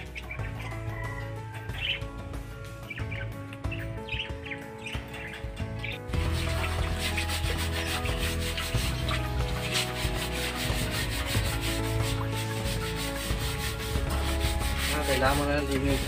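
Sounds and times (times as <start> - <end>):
background music: 0.0 - 16.0
scrub pad rubbing wire mesh: 5.1 - 16.0.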